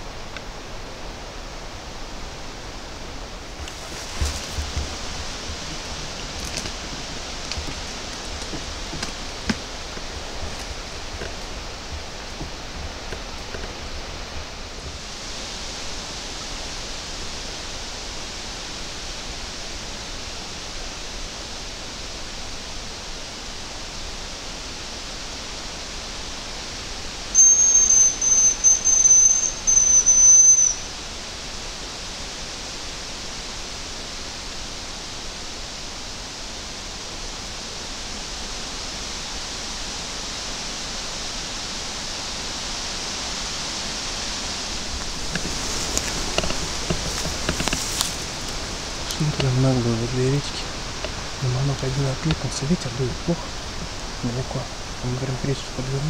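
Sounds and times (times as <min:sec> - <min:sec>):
wind in foliage: 0:00.0 - 0:56.0
high thin decoy whistle: 0:27.3 - 0:30.9.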